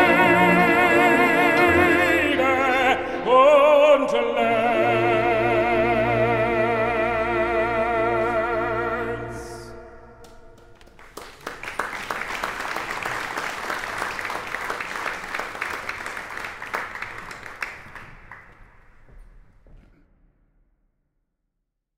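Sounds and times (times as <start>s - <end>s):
audience applauding: 10.2s - 19.0s.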